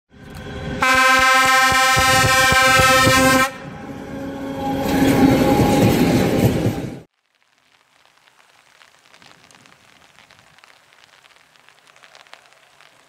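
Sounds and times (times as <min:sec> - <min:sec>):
passing train rumble: 0:00.1 - 0:07.1
train horn: 0:00.8 - 0:04.8.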